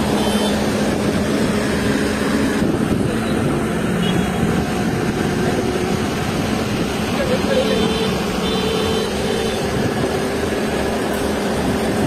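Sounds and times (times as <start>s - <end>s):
diesel engine running: 0.0s - 12.0s.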